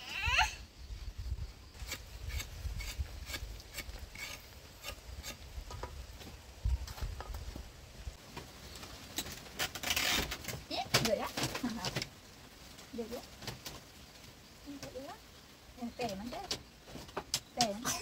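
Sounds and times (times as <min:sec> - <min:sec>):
knife scraping cassava skin: 0:01.8 - 0:05.4.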